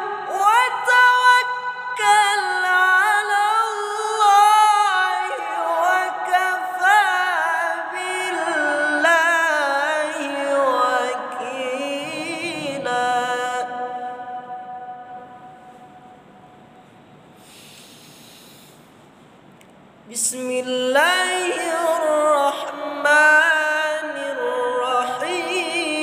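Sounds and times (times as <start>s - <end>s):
man reciting melodically: 0.0s - 14.4s, 20.1s - 26.0s.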